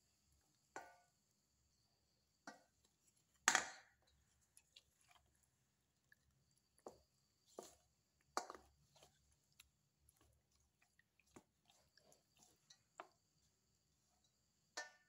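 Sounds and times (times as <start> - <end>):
spoon squelching in wet chicken: 4.0 - 15.0.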